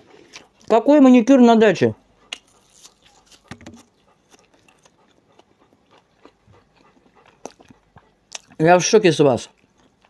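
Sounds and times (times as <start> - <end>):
quiet chewing with crunches: 0.0 - 0.8, 2.0 - 10.0
biting into green onion: 2.3 - 8.6.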